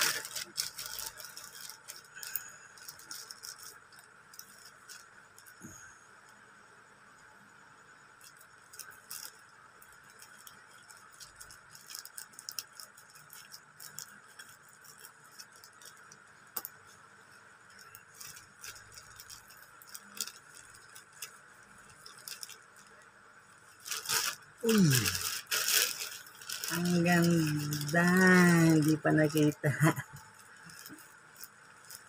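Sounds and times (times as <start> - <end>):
plastic crinkling and rustling: 0.0 - 5.7, 8.2 - 32.0.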